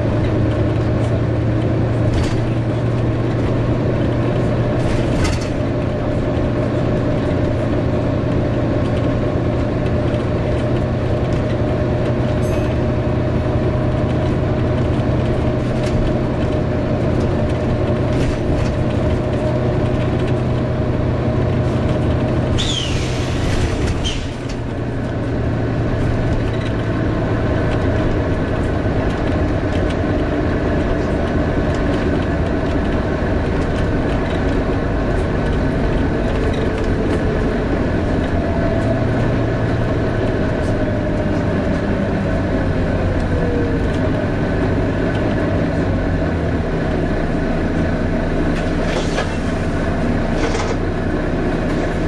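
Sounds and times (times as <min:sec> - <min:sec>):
bus diesel engine running: 0:00.0 - 0:52.0
engine cooling fan whine: 0:00.0 - 0:52.0.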